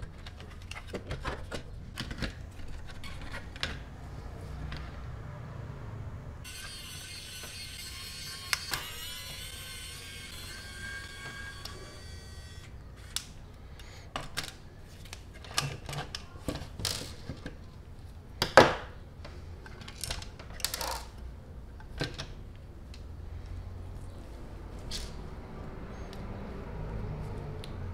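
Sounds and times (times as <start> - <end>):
steady whine: 6.4 - 13.2.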